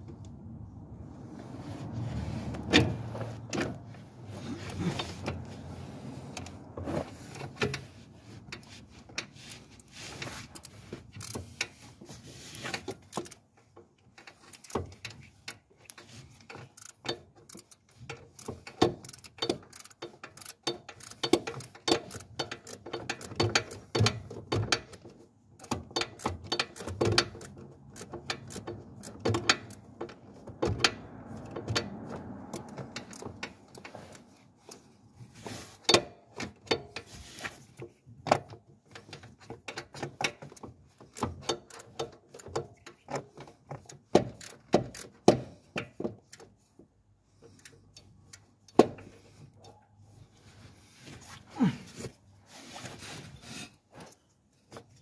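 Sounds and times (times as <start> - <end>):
ratchet wrench clicking: 10.6 - 11.8, 13.0 - 13.4, 14.3 - 25.0, 25.6 - 30.0, 32.5 - 34.8, 43.8 - 46.4.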